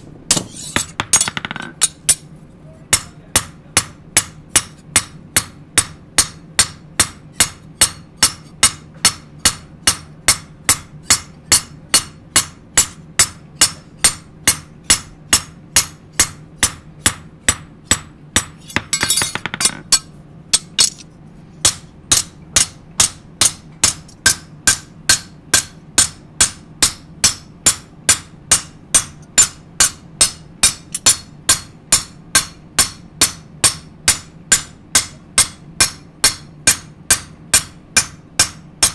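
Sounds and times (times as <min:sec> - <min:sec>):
hammer ringing on steel: 0:21.6 - 0:38.9.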